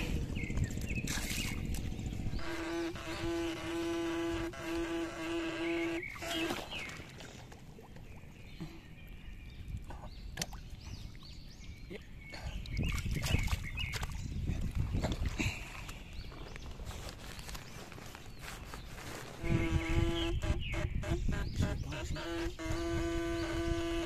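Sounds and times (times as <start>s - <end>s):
steady buzz: 2.4s - 6.3s, 19.4s - 24.0s.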